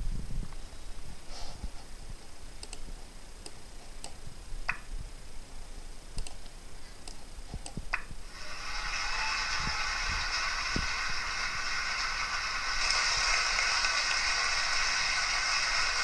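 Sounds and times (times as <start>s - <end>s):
low steady hiss: 0.0s - 16.0s
light clicks: 6.2s - 8.1s.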